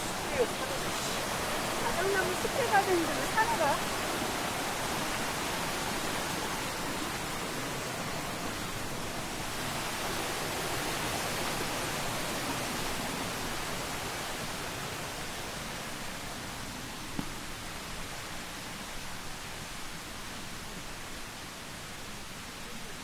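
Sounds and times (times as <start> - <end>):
steady outdoor rushing hiss: 0.0 - 23.0.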